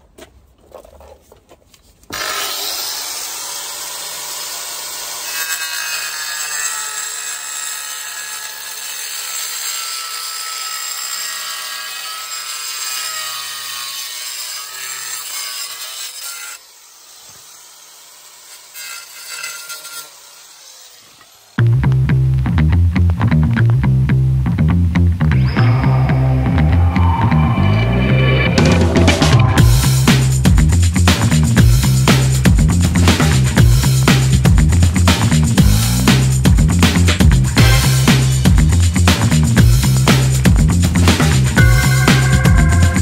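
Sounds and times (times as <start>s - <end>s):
angle grinder cutting: 2.1s - 21.6s, 25.4s - 43.0s.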